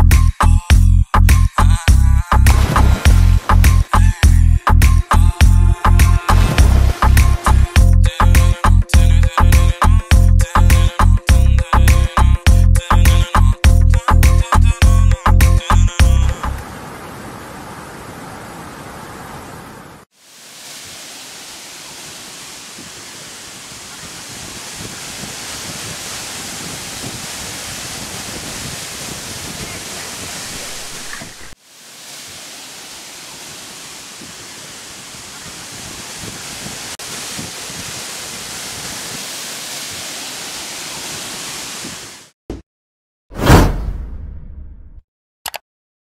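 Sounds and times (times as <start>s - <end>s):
waterfall pouring into pool: 2.5s - 3.9s, 6.2s - 7.5s, 20.1s - 42.3s.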